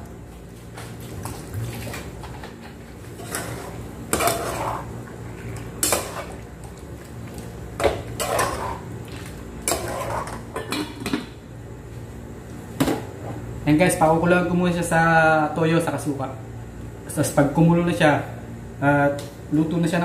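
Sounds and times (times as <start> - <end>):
utensil scraping cooking pot: 3.1 - 6.5, 7.8 - 8.9, 9.6 - 10.8.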